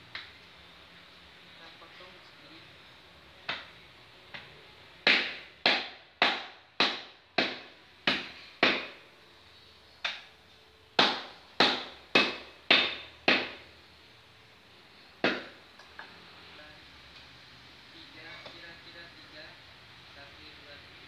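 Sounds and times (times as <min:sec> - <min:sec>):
cleaver chopping ribs on wood: 0:05.0 - 0:09.0, 0:11.0 - 0:13.6, 0:15.2 - 0:15.6.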